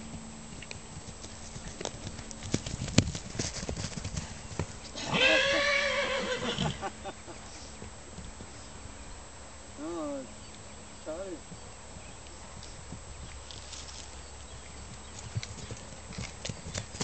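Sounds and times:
hooves galloping on turf: 0.0 - 6.8, 7.4 - 9.0, 11.4 - 17.0
horse whinnying: 5.0 - 6.8.

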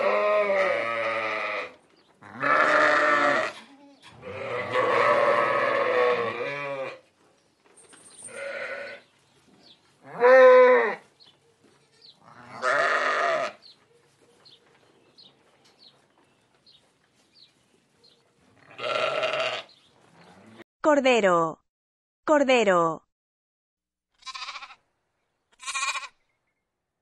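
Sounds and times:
sheep bleating: 0.0 - 7.0, 8.3 - 9.0, 10.0 - 11.0, 11.8 - 13.6, 18.6 - 20.6, 24.2 - 24.8, 25.5 - 26.2.

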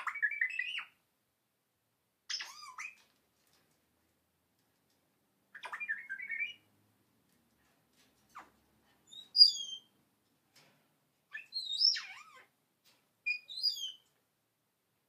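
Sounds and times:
parrot whistling and chirping: 0.0 - 1.0, 2.3 - 3.0, 5.6 - 6.7, 9.1 - 9.9, 11.3 - 12.5, 13.3 - 14.0.

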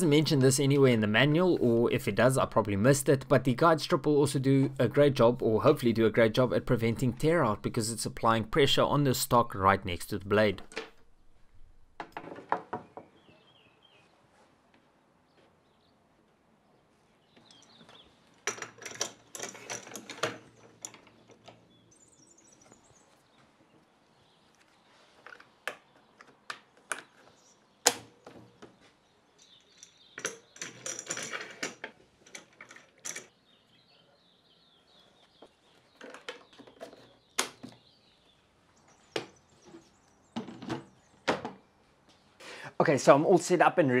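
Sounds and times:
faint bird chirps: 12.8 - 14.3, 33.3 - 41.9.

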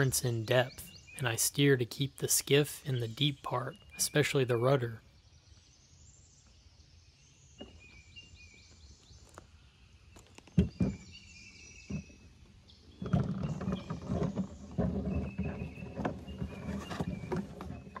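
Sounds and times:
small birds chirping: 0.0 - 18.0
water and hull noise: 11.8 - 18.0.

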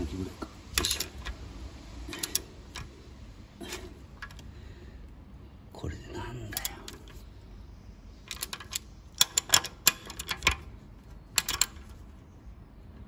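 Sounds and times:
socket ratchet clicking: 0.7 - 1.4, 2.1 - 3.0, 4.2 - 4.5, 8.2 - 10.7, 11.3 - 12.0.

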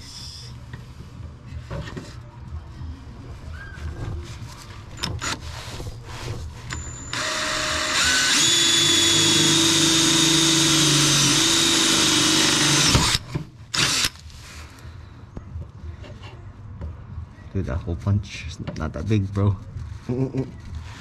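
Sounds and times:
power drill whining: 6.7 - 14.2.

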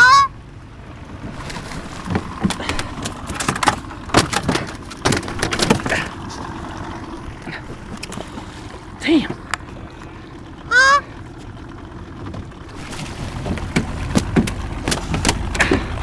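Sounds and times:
goose honk: 0.0 - 0.4, 10.6 - 11.2
water splashing: 1.2 - 11.6, 12.4 - 16.0
knocks and clatter on metal boat: 1.5 - 9.7, 11.4 - 16.0.

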